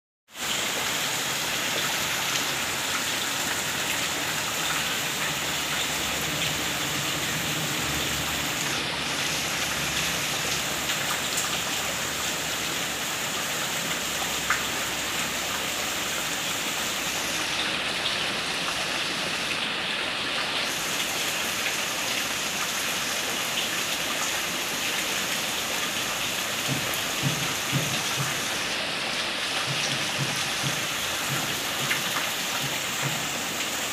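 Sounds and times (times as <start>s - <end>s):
heavy rain on puddles: 0.3s - 33.9s.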